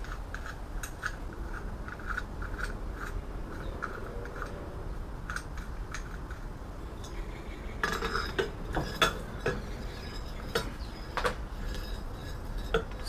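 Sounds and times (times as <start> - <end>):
metal clinks and knocks: 5.2 - 13.0.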